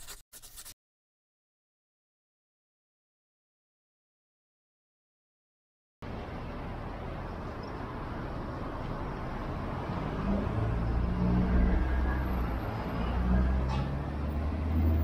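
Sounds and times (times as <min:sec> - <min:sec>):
road noise hiss: 0:06.0 - 0:11.4
vehicle engine approaching: 0:09.3 - 0:15.0.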